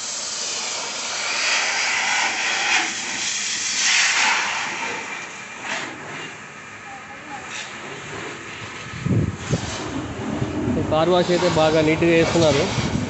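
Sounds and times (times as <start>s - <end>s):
pressure washer jet hissing: 0.0s - 6.2s, 8.8s - 13.0s.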